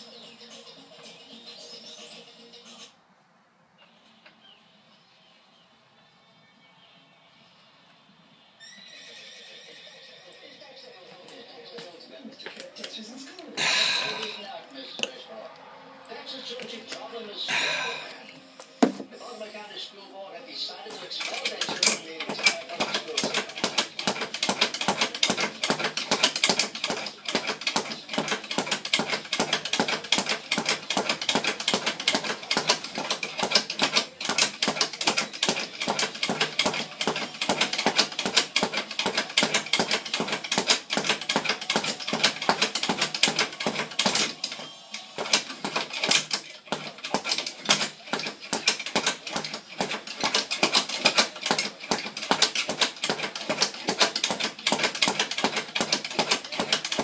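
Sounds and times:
speed bag rattling: 21.0s - 57.0s.

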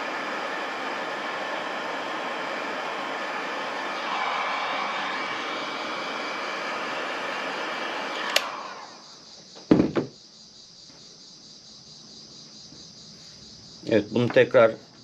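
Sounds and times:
heat gun blowing air: 0.0s - 9.1s
heat gun switch click: 8.2s - 8.6s
heat gun set down on wood: 9.6s - 10.2s.

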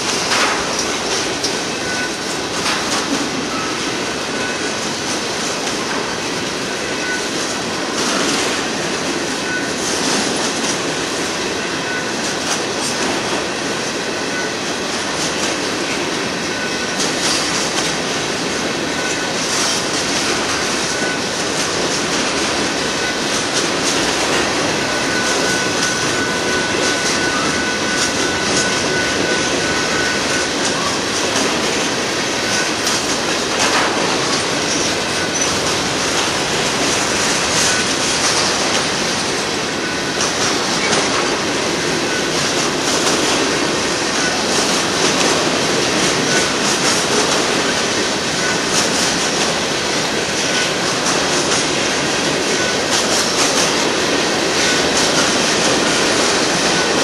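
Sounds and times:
freight train wheels rumbling: 0.0s - 57.0s
wheels clacking over rail joints: 0.0s - 57.0s.

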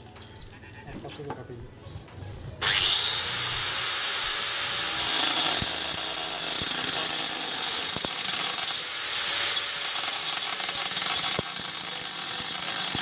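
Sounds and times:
abrasive blade grinding stone: 2.6s - 13.0s.

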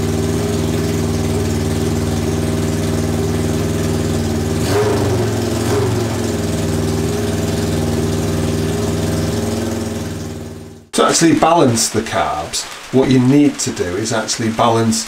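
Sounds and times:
motorcycle engine idling: 0.0s - 10.9s.

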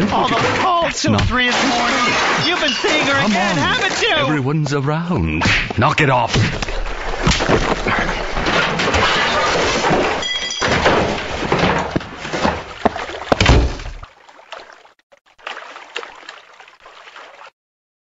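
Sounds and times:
cartoon thuds: 5.3s - 14.0s.

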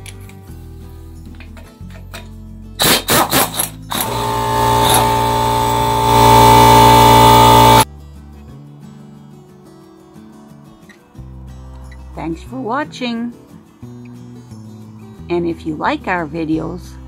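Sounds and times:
background music: 0.0s - 17.0s
impact wrench whining: 2.8s - 7.8s.

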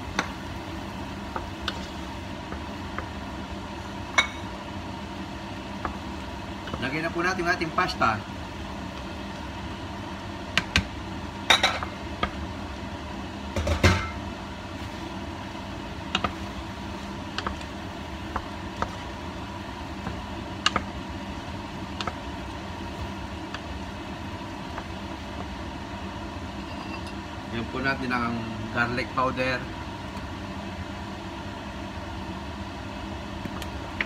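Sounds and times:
steady low hum: 0.0s - 34.0s
wooden spoon stirring pasta: 14.7s - 26.0s.

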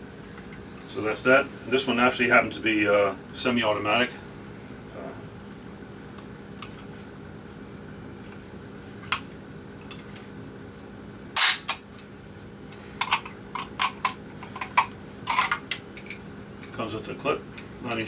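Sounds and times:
sharp metallic snap: 11.4s - 11.8s.

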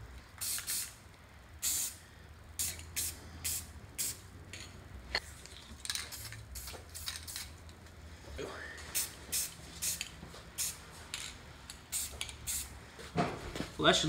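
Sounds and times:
spray cans hissing: 0.3s - 1.0s, 1.6s - 2.0s, 2.6s - 7.8s, 8.8s - 12.8s.

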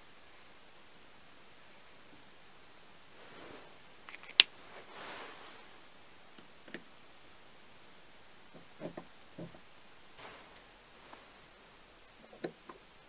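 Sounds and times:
soft metal scrape: 3.1s - 5.8s, 10.2s - 11.7s.

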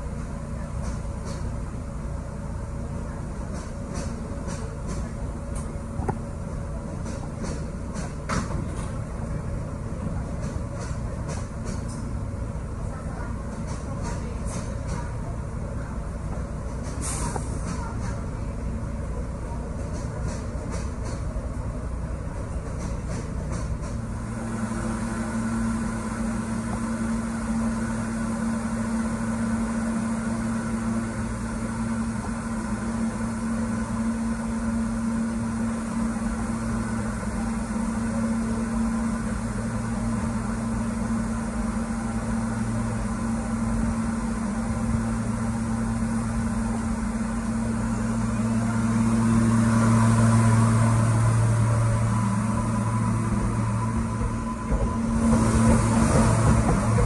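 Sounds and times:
train equipment humming: 0.0s - 57.0s
hiss: 16.9s - 18.2s.

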